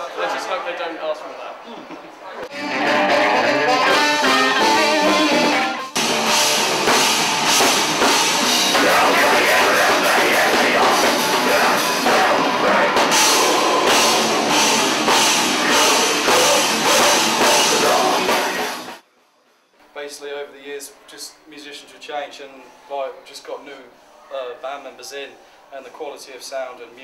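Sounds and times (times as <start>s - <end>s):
electric guitar: 2.4s - 19.0s
rock band playing: 2.5s - 19.0s
drums and cymbals: 2.8s - 19.0s.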